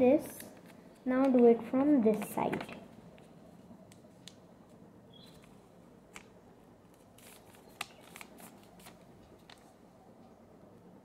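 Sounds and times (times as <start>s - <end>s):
sharp paper clicks: 2.1s - 9.7s
paper rustling and crinkling: 6.9s - 9.8s.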